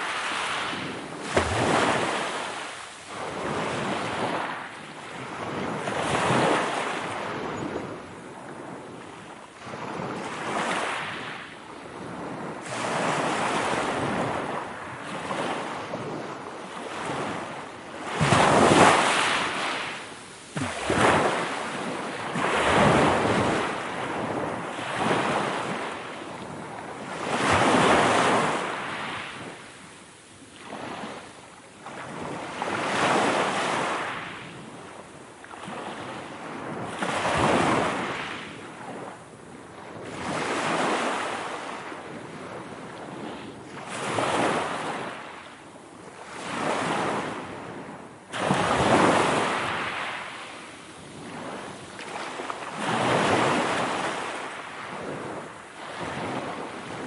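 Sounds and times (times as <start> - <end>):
sea waves breaking: 0.0 - 39.2, 39.8 - 57.0.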